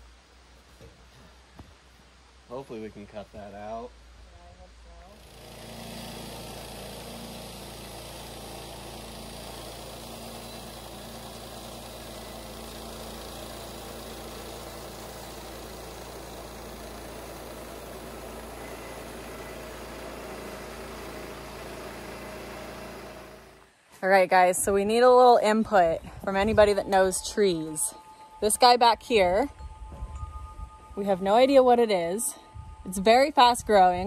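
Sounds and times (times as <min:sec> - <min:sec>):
small gasoline engine running: 0:05.1 - 0:23.7.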